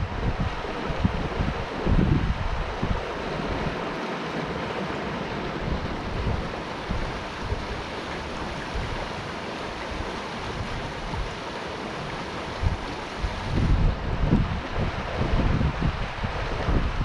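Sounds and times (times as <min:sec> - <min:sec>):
river rushing through rocks: 0:00.0 - 0:17.0
wind buffeting microphone: 0:00.0 - 0:17.0.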